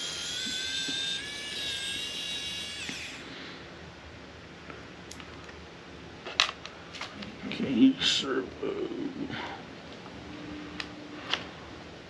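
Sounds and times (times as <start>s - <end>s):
electric screwdriver motor whine: 0.0s - 3.3s.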